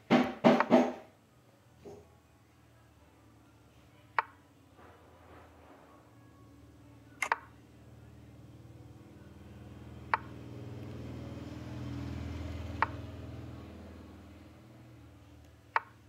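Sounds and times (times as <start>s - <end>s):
chess app move clicks: 7.2s - 7.5s, 15.7s - 16.0s.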